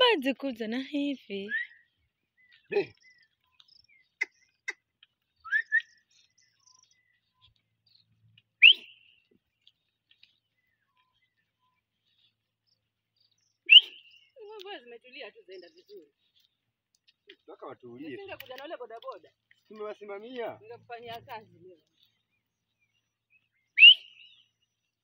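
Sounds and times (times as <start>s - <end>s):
sharp rising whistles: 5.5s - 6.0s, 8.6s - 9.1s, 13.7s - 14.1s, 23.8s - 24.3s.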